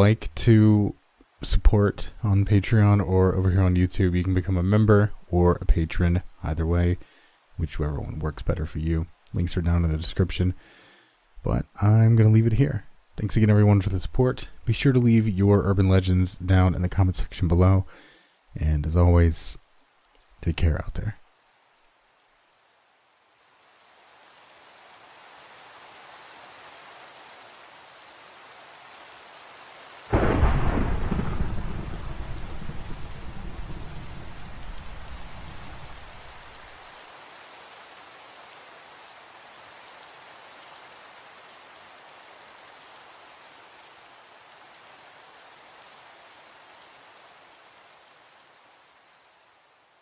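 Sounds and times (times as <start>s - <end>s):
steady rain: 0.0s - 50.0s
thunderclap rumbling: 30.1s - 36.6s.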